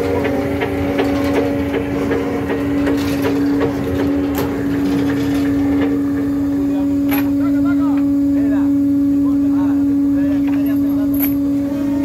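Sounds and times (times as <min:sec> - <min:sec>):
knocks and clatter: 0:00.0 - 0:06.3
deck machinery hum: 0:00.0 - 0:12.0.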